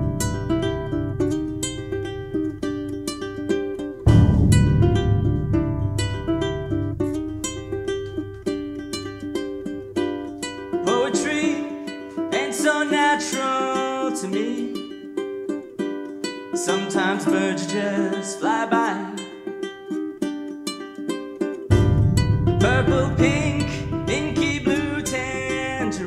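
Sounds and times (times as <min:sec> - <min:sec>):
wavering melody line: 0:00.0 - 0:12.2, 0:21.7 - 0:26.0
ukulele strumming: 0:00.0 - 0:26.0.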